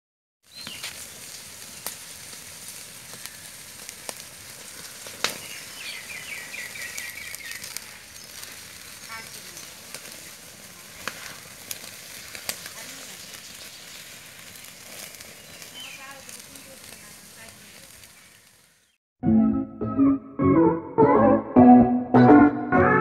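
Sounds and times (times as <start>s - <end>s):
chicken sizzling on grill: 0.4s - 19.0s
wood fire crackling: 0.4s - 19.0s
sharp pops: 3.8s - 5.6s, 11.0s - 12.8s.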